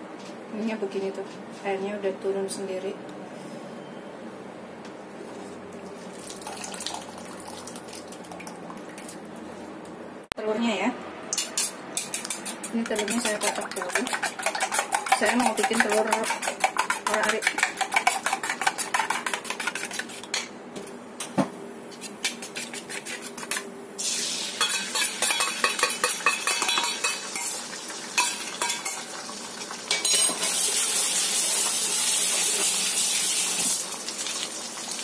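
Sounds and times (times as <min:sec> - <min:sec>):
eggs beaten in a metal bowl: 0:11.4 - 0:20.5, 0:22.2 - 0:23.6
egg sizzling in hot oil: 0:24.0 - 0:35.0.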